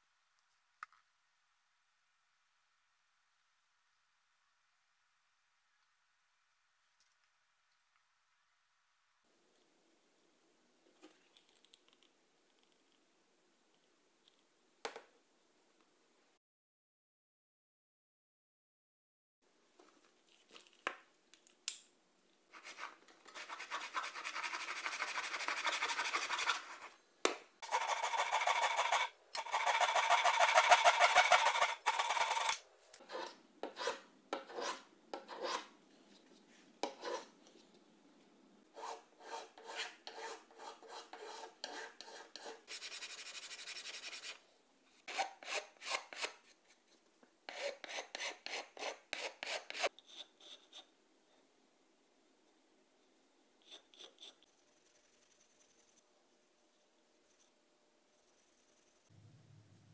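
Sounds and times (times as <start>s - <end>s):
file scraping wood: 22.6s - 26.9s, 27.6s - 35.7s, 36.8s - 37.3s, 38.8s - 44.4s, 45.0s - 46.4s, 47.5s - 50.9s, 53.6s - 54.5s.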